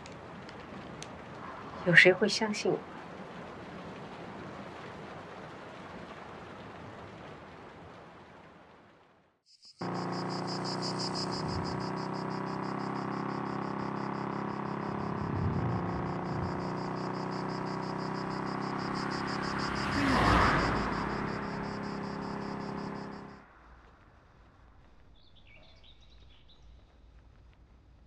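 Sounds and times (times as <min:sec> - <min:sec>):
insects chirping trill: 0:09.5 - 0:23.4
low steady hum: 0:09.8 - 0:18.9
vehicle passing: 0:09.8 - 0:23.6.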